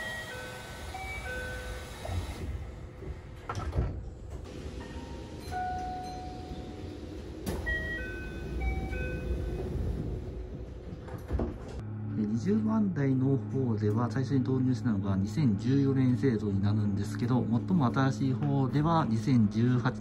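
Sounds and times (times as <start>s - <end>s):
train doors sliding shut: 0.0s - 11.8s
train running rumble: 0.0s - 20.0s
door chime of short tones: 4.8s - 9.7s.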